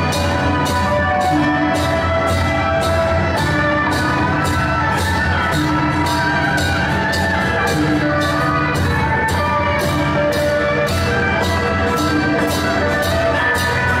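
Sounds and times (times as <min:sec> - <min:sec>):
steady drumming: 0:00.0 - 0:14.0
sustained melody: 0:00.0 - 0:14.0.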